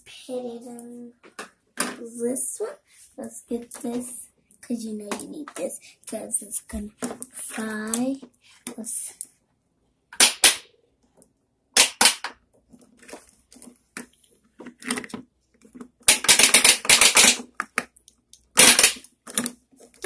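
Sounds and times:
plastic toys clacking together: 14.6s - 20.0s.

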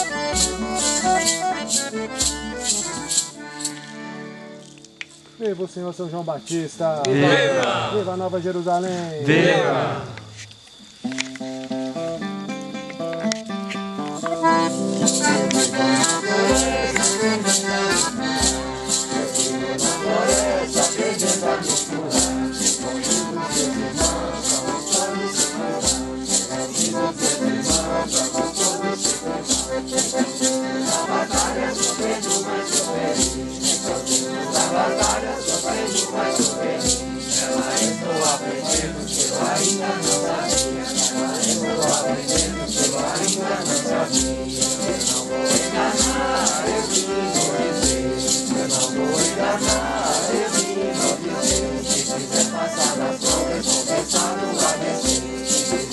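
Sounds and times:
maracas shaking: 0.0s - 4.0s, 14.0s - 55.9s
group singing a hymn: 7.0s - 8.4s, 9.2s - 10.5s, 14.4s - 55.9s.

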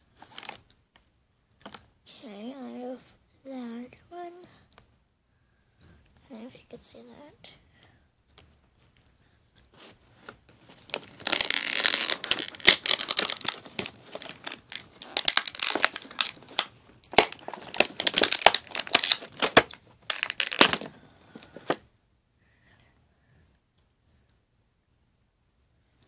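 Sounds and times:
plastic packaging tearing and crinkling: 0.2s - 0.6s, 10.7s - 21.8s.

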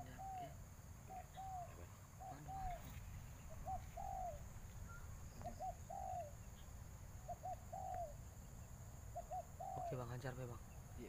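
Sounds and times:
dove cooing: 0.0s - 6.6s, 7.2s - 8.2s, 9.1s - 10.1s.

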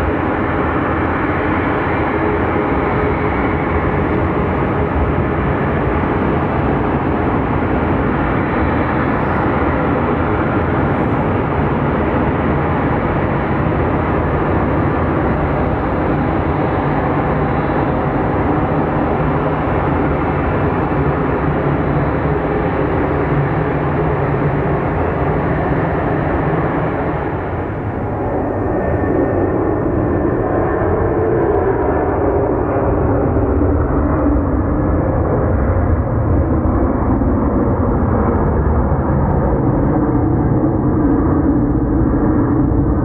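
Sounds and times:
jet engines at taxi power: 0.0s - 43.0s.

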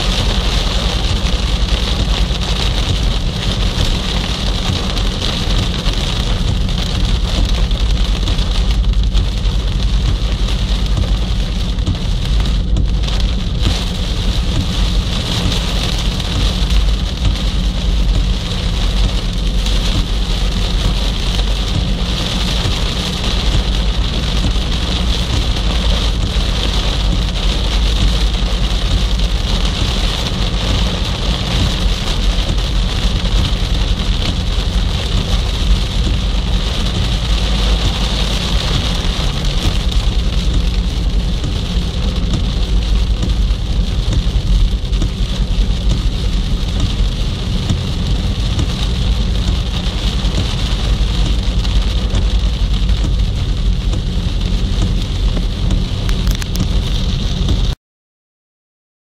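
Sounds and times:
engine and tyres on wet road: 0.0s - 57.8s
rain on car: 0.0s - 57.8s.

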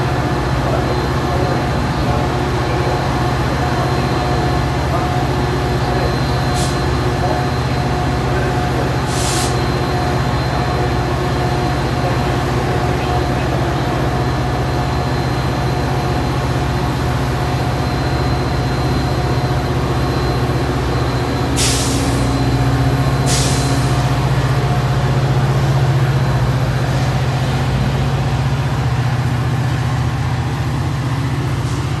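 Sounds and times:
diesel locomotive engine running: 0.0s - 32.0s
air brake hisses: 6.5s - 7.0s, 9.0s - 9.7s, 21.6s - 22.4s, 23.2s - 24.0s.

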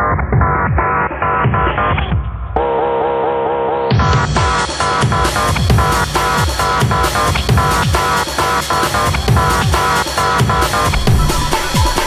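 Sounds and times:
electronic dance music: 0.4s - 12.0s
deep bass hits: 10.9s - 12.0s.

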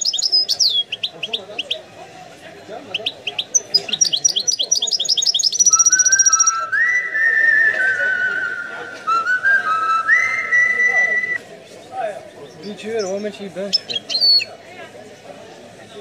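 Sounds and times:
bird twittering: 0.0s - 1.8s, 2.9s - 6.7s, 12.5s - 14.5s
long whistled bird notes: 3.3s - 11.4s.

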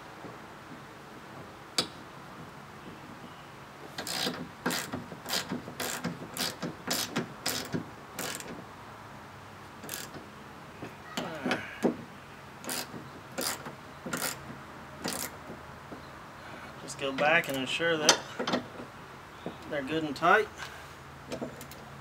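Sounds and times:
hand ratchet clicking: 4.0s - 8.5s, 9.8s - 10.2s, 12.6s - 14.4s, 15.0s - 15.4s.

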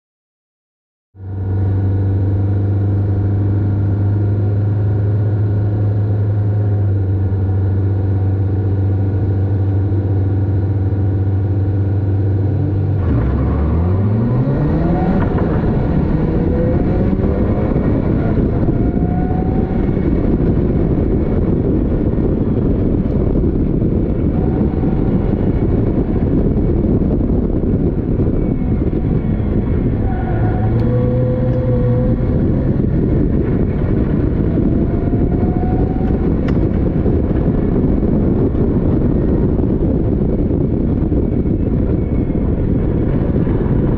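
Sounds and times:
wind and road noise: 1.2s - 43.9s
race car engine revving: 12.3s - 43.9s.

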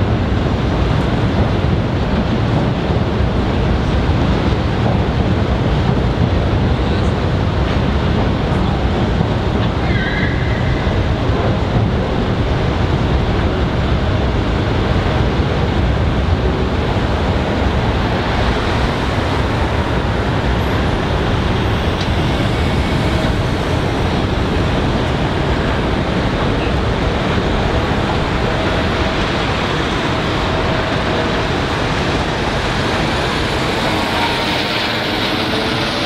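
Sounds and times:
freight train rumbling over viaduct: 0.0s - 36.0s
road traffic: 9.5s - 36.0s.

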